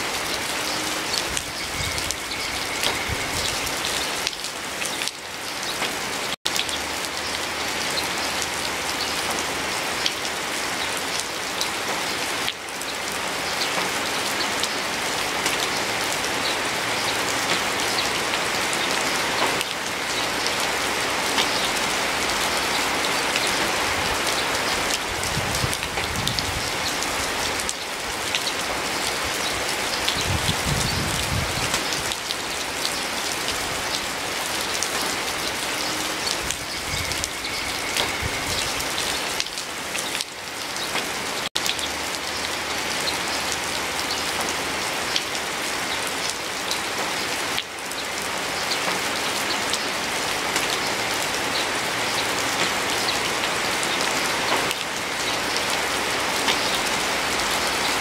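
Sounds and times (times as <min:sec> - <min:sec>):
heavy rain hissing: 0:00.0 - 0:58.0
raindrop ticks: 0:56.4 - 0:56.8.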